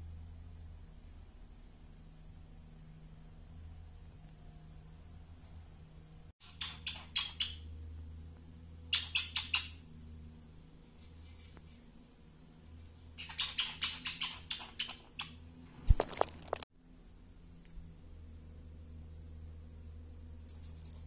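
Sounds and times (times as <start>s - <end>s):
budgerigar clicking chirps: 6.4s - 7.7s, 8.9s - 9.8s, 13.2s - 15.4s.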